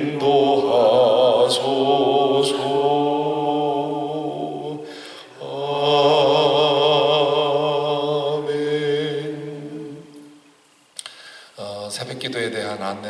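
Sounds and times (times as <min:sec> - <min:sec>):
person singing a slow hymn: 0:00.0 - 0:10.5.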